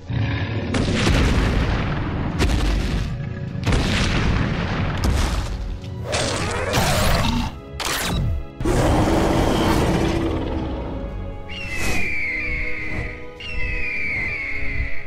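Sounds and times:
background music: 0.0 - 15.0
heavy booms and crashing impacts: 0.7 - 5.6.

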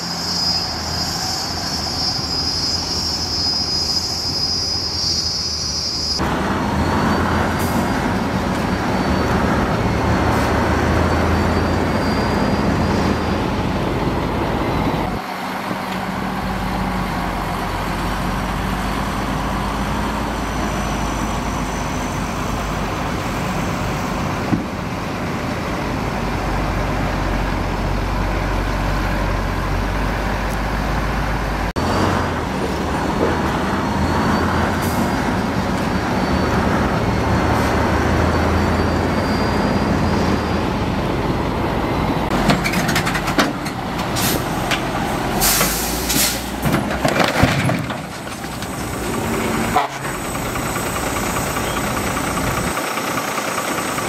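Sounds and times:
diesel machinery engine hum: 0.0 - 54.0.

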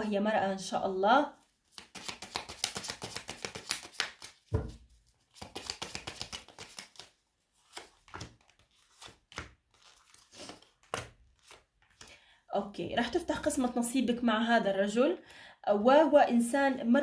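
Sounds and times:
cards being shuffled: 1.7 - 12.1.

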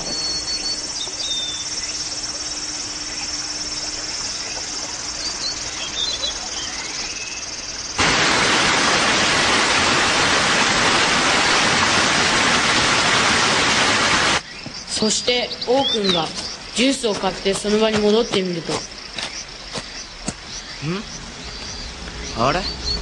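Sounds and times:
insects droning: 0.0 - 23.0
rushing stream water: 2.1 - 14.4.

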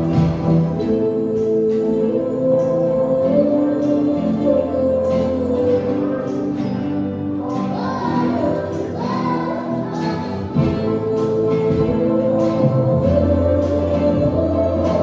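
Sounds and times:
acoustic guitar: 0.0 - 15.0
ukuleles strumming: 0.0 - 15.0
voices singing along: 0.0 - 15.0.

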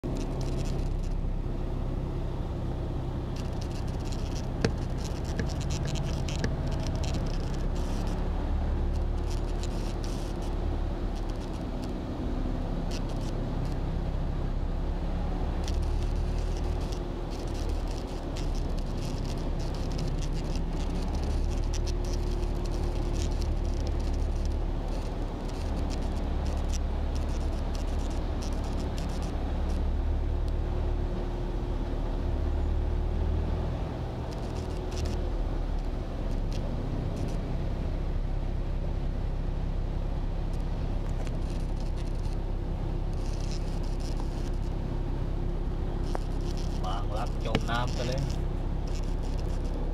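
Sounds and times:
truck engine rumble: 0.0 - 49.9
water splashing around wheels: 2.8 - 14.0, 14.9 - 32.2.

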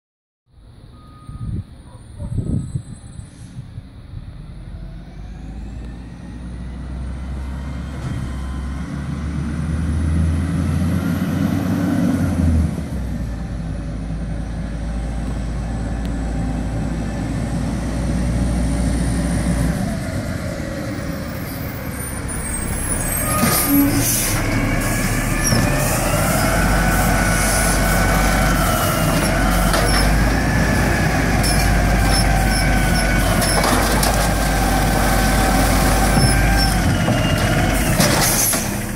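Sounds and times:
air brakes: 2.7 - 3.7, 23.3 - 26.2, 37.8 - 38.8
garbage truck engine: 4.0 - 38.9.

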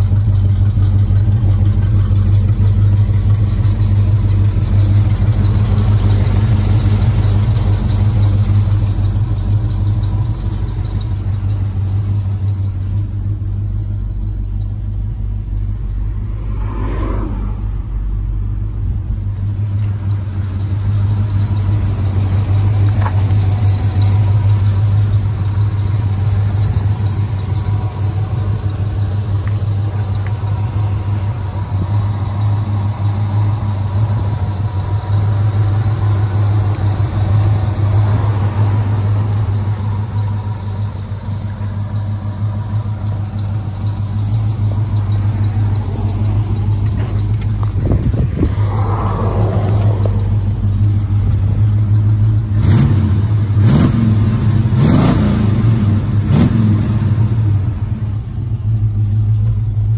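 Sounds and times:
pickup engine idling: 0.0 - 59.9.

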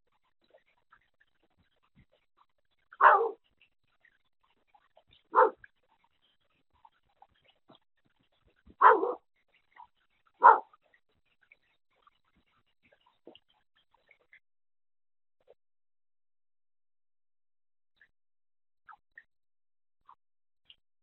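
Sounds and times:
bark-like animal calls: 3.0 - 3.4, 5.3 - 5.6, 8.8 - 9.2, 10.4 - 10.7.

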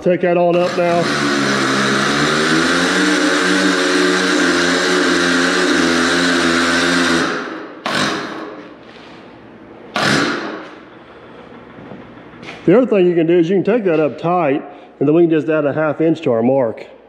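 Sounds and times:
electric hoist running: 0.0 - 12.6.

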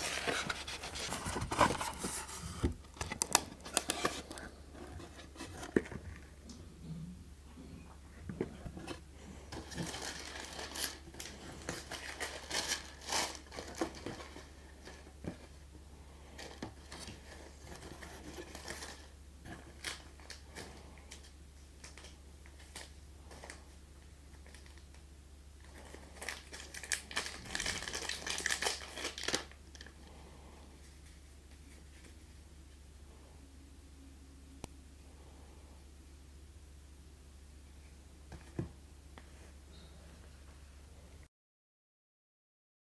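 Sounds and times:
tissue paper crinkling: 0.0 - 5.9, 9.5 - 15.2, 25.8 - 30.0.

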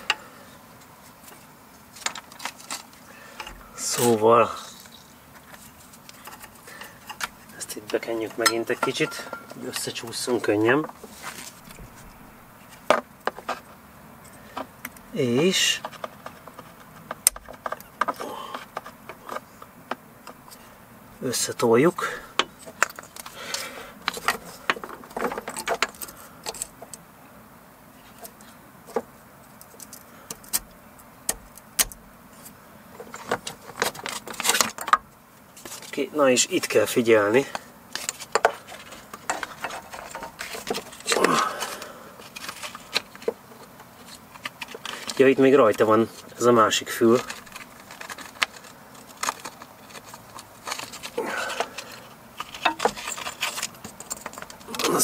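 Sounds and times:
cable scuffling: 0.9 - 19.7, 36.6 - 55.0.

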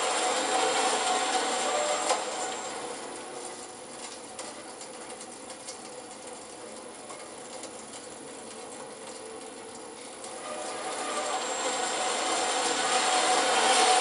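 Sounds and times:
band saw running: 0.0 - 3.5, 10.3 - 14.0.

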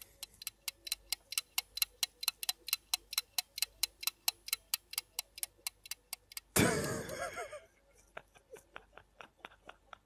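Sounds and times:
clock ticking: 0.0 - 7.4.

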